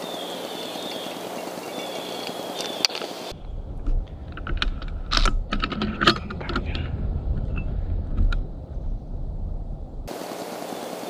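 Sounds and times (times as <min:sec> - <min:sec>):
low rumble: 0:03.3 - 0:10.1.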